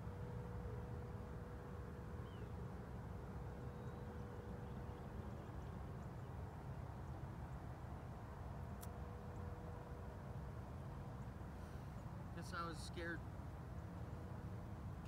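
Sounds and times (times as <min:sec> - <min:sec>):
faint hum: 0:00.0 - 0:15.0
faint bird chirps: 0:02.2 - 0:02.6, 0:03.5 - 0:07.6.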